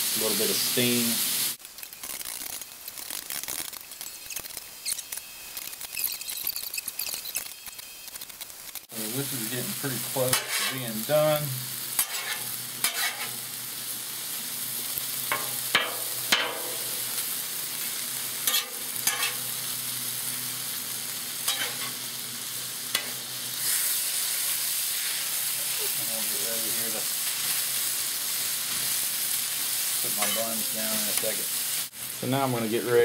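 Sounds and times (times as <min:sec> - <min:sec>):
chicken sizzling on griddle: 0:00.0 - 0:33.0
metal spatula clacking: 0:21.5 - 0:21.9.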